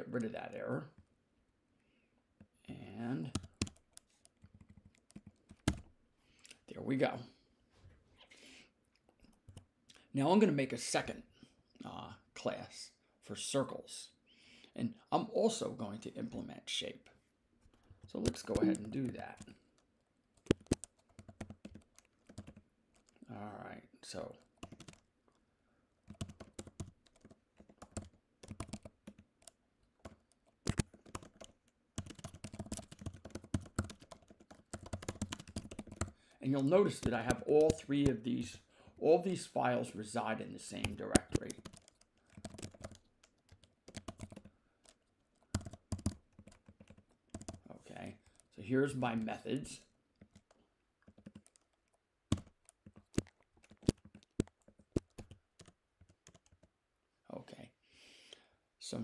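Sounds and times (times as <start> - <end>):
typing on computer keyboard: 3.2 - 5.9, 20.4 - 23.2, 24.4 - 25.1, 26.1 - 36.2, 36.8 - 38.2, 40.7 - 47.6, 50.2 - 56.7.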